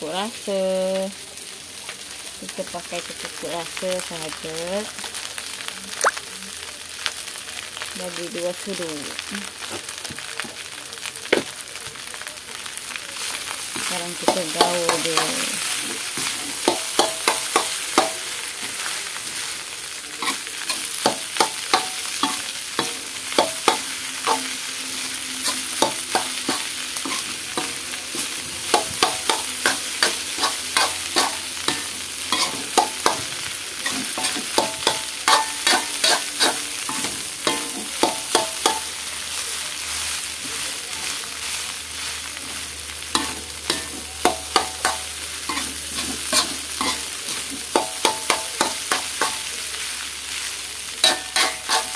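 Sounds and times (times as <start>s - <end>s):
food frying hiss: 0.0s - 51.9s
metal spatula scraping wok: 20.2s - 38.9s, 41.4s - 49.4s, 51.0s - 51.9s.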